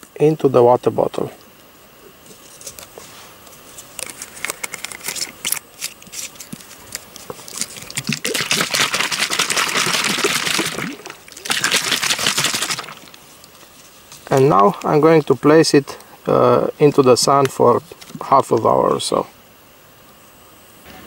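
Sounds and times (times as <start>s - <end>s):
water sloshing in bottle: 7.2s - 13.6s.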